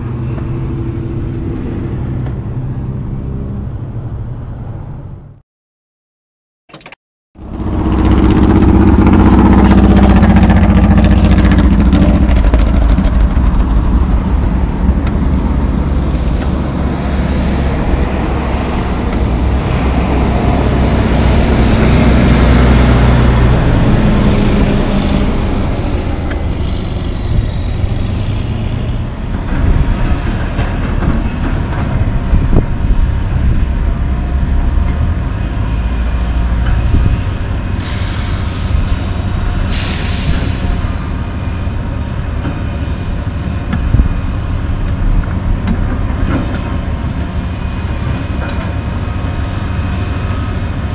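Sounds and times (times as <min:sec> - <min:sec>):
traffic rumble: 0:00.0 - 0:05.4, 0:07.4 - 0:50.9
dump truck driving past: 0:07.4 - 0:50.9.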